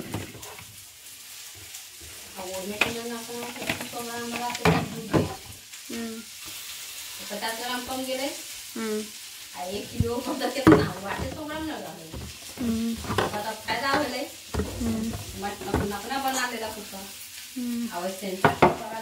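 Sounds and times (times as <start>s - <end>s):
person talking: 8.8s - 17.0s
plastic jars knocking on shelf: 9.9s - 16.4s, 18.5s - 18.8s.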